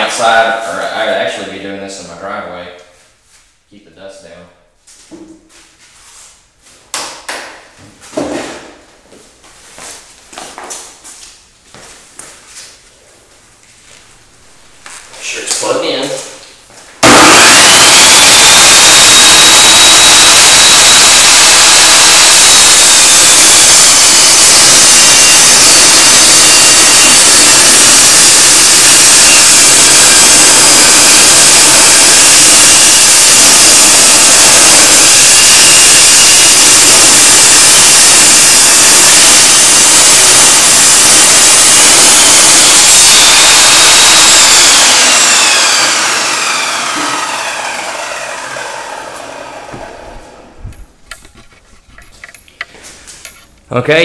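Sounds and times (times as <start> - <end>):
table saw whine cutting wood: 17.0 - 50.6.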